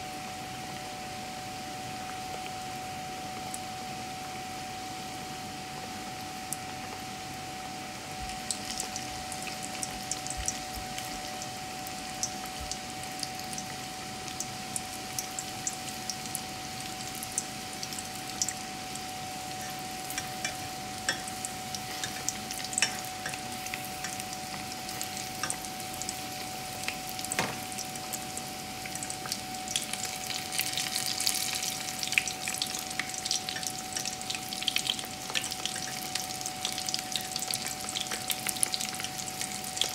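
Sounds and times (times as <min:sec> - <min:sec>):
food deep-frying in oil: 0:00.0 - 0:39.9.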